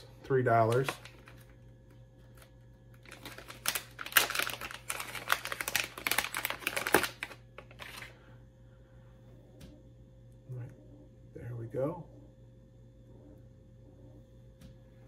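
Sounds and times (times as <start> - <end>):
plastic package crinkling: 0.3 - 8.2.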